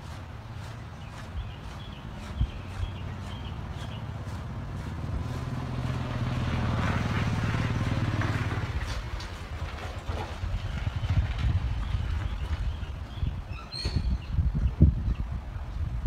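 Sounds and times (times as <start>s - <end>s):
hands scrubbing lathered scalp: 0.0s - 6.5s
vehicle engine hum passing: 0.0s - 13.2s.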